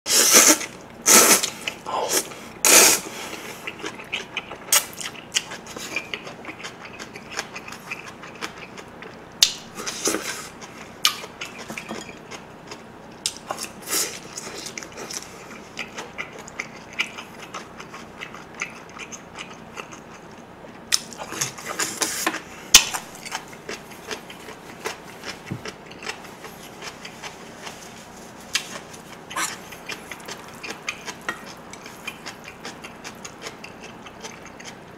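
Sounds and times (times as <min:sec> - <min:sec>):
wet chewing and lip-smacking: 0:03.4 - 0:22.1, 0:28.5 - 0:34.9.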